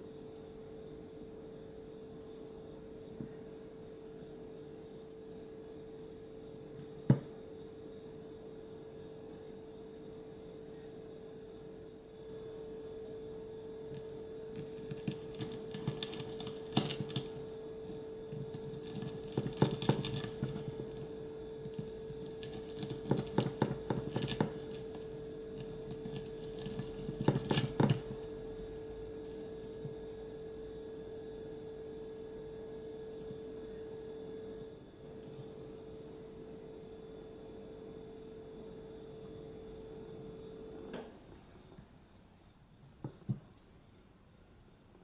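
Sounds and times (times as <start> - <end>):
steady low hum: 0.0 - 45.0
knife slicing crispy crust: 14.6 - 17.4, 18.3 - 21.1, 21.7 - 28.2.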